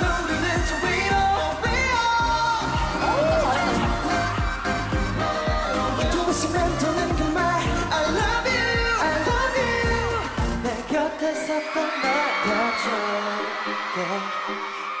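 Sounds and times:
man singing slow melody: 0.0 - 4.5, 5.2 - 15.0
steady drum beat: 0.0 - 10.8.

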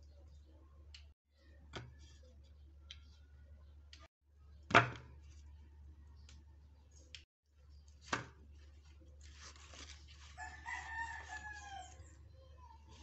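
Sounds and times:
rooster crowing: 10.4 - 12.1.

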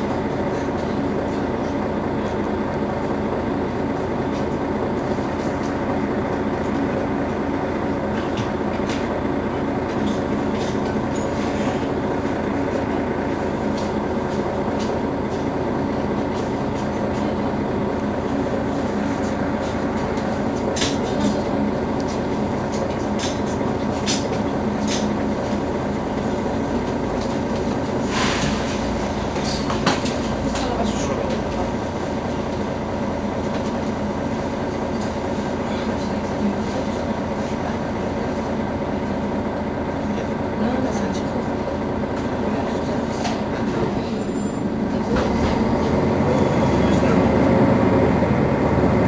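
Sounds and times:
bus engine idling: 0.0 - 49.0.

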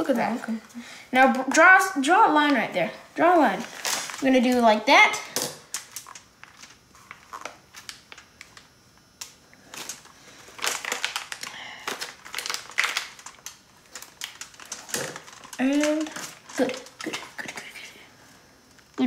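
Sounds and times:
plastic bag crinkling: 3.4 - 4.7, 5.4 - 8.7, 9.6 - 19.0.

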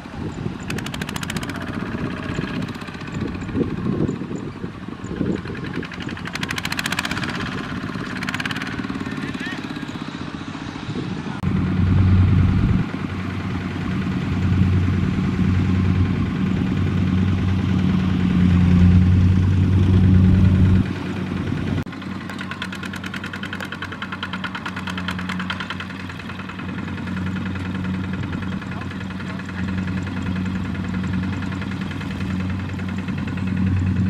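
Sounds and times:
diesel engine clattering: 0.0 - 34.0.

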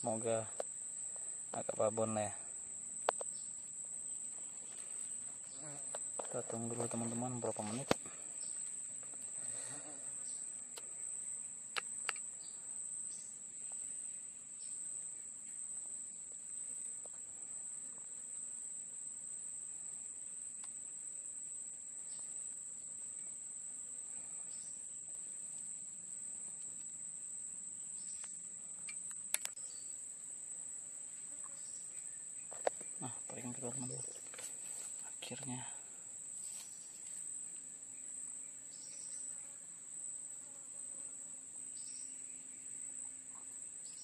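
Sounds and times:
insects chirring: 0.0 - 44.0
sharp clicks: 28.8 - 29.6.

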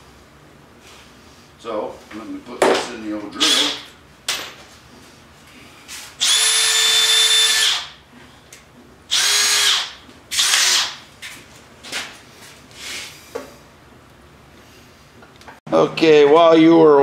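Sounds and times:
cordless drill motor whine: 6.2 - 7.9, 9.1 - 11.0.

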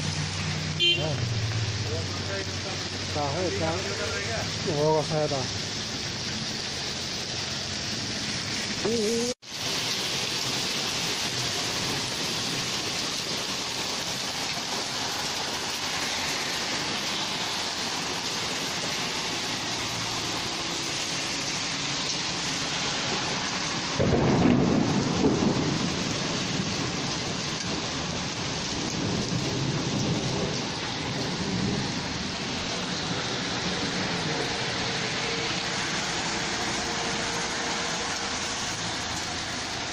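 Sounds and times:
heavy rain on pavement: 0.0 - 39.9
thunder rumbling: 22.9 - 35.1.

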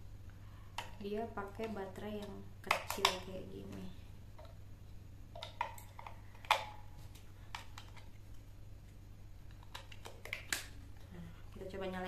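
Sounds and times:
plastic clicks and taps: 1.6 - 3.8.

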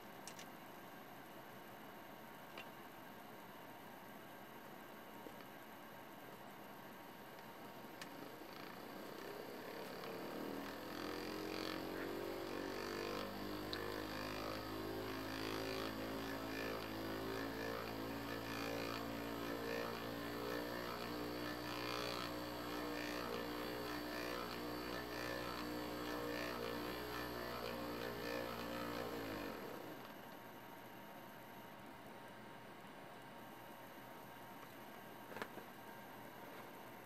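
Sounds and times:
small electric motor whining: 8.0 - 30.4.

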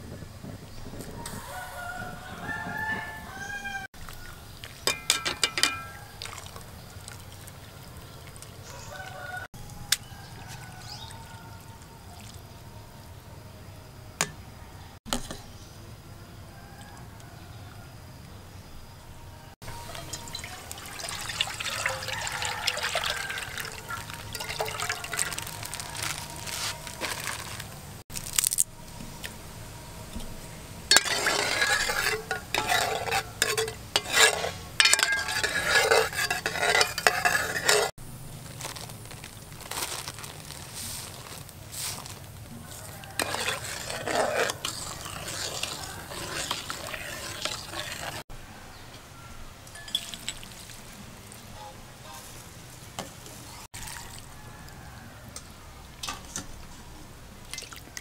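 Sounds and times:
liquid sloshing: 4.0 - 9.0, 19.8 - 27.6, 30.9 - 37.9, 42.8 - 48.2
metal ladle scraping a pot: 4.8 - 6.6, 19.6 - 27.7, 30.1 - 38.0, 41.8 - 48.3.

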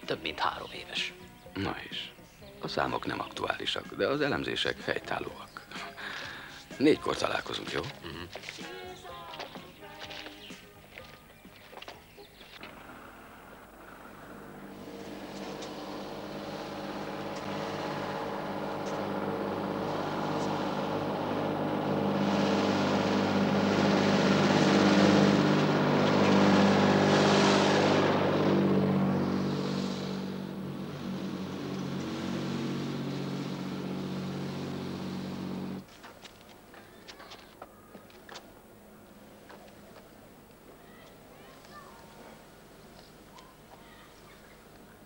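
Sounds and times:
tractor engine passing by: 11.8 - 37.5.

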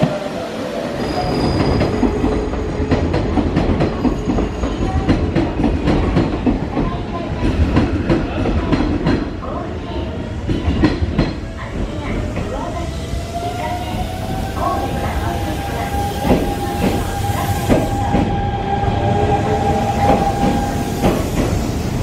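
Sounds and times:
train rumble: 0.0 - 22.0
train wheels clacking: 13.9 - 18.4, 19.5 - 22.0.

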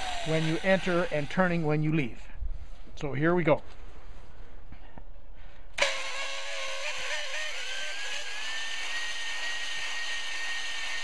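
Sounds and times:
electric drill motor whine: 0.0 - 1.7, 5.8 - 11.0.

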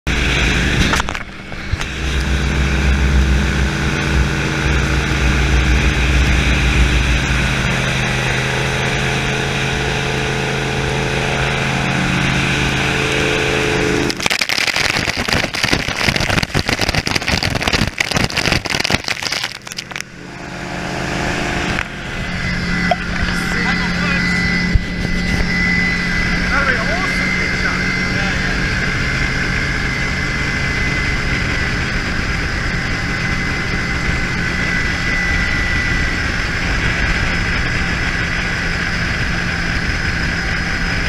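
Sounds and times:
boat engine running hard: 0.1 - 41.0
loud crackling buffeting: 0.1 - 41.0.

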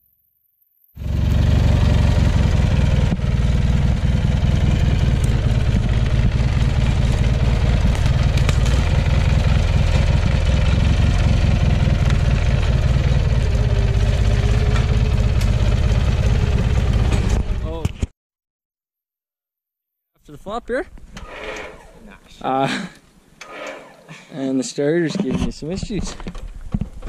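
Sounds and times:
lawn tractor engine running: 1.0 - 17.8.

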